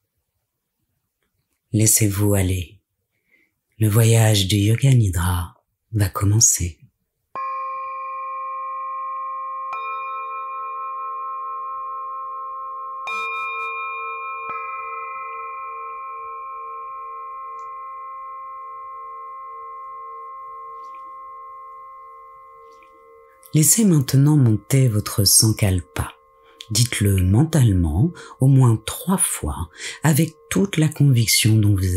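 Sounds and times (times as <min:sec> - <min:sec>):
singing bowls ringing: 0:07.3 - 0:31.9.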